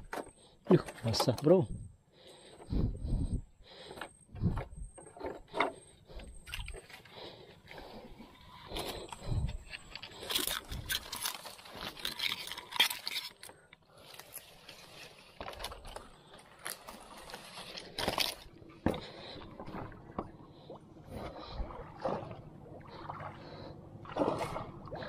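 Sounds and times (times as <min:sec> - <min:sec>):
wooden boat scraping through palm stems: 0:07.8 - 0:15.8.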